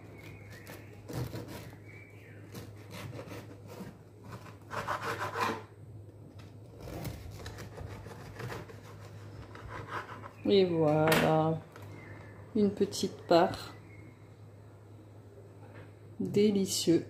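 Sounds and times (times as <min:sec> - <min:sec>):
knife sawing through crusty bread: 0:00.2 - 0:01.8, 0:02.5 - 0:05.6, 0:06.8 - 0:10.3.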